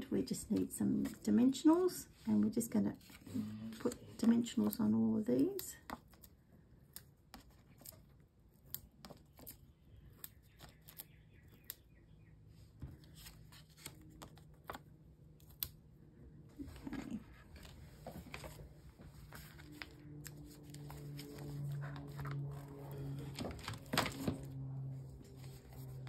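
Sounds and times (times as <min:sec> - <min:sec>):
paper rustling and clicks: 0:17.6 - 0:24.6.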